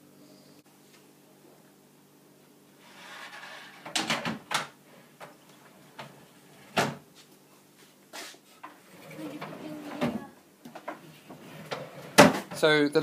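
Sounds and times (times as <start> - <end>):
drawer sliding rasp: 2.8 - 4.3, 8.8 - 10.2, 11.0 - 12.5
drawer knocking into place: 12.1 - 12.6.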